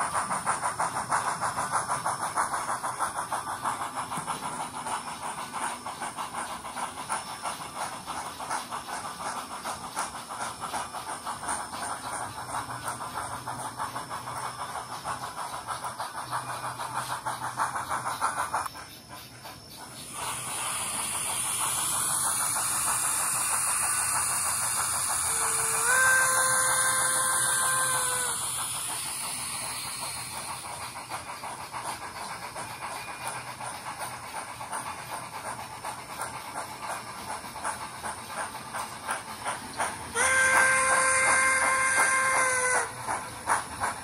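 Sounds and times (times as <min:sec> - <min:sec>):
rhythmic steam chuffing: 0:00.0 - 0:44.0
steam hiss: 0:00.0 - 0:44.0
locomotive whistle blast: 0:25.2 - 0:28.4, 0:40.1 - 0:43.0.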